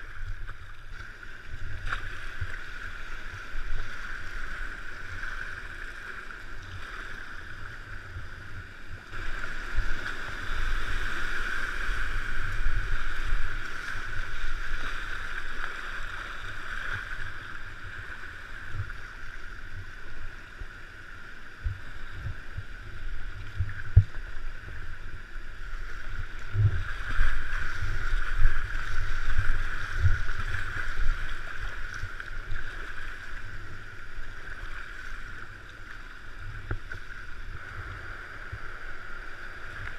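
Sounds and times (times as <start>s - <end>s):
water rushing over weir: 0.0s - 39.9s
kayak paddling thumps: 26.1s - 34.4s.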